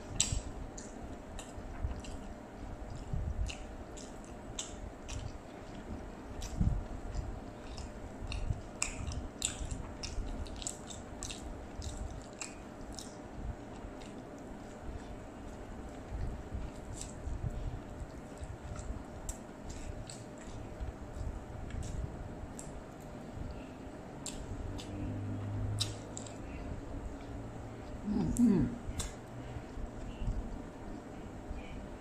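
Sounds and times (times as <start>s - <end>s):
wet chewing and smacking: 0.1s - 28.0s, 28.9s - 31.7s
sticky mouth clicks: 28.2s - 29.2s.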